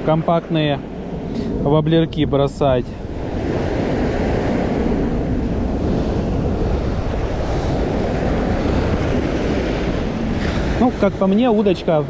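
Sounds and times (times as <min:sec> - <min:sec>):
surf on pebble beach: 0:00.0 - 0:12.0
wind buffeting microphone: 0:00.0 - 0:12.0.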